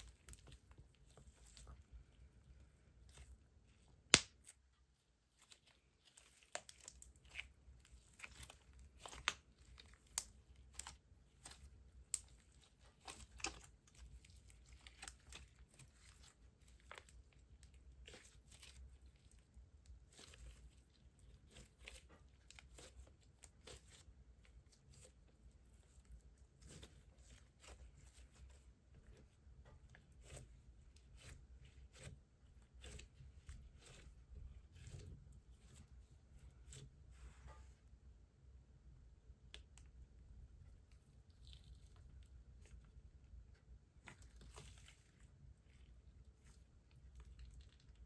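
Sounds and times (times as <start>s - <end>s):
slime popping and crackling: 4.0s - 4.6s.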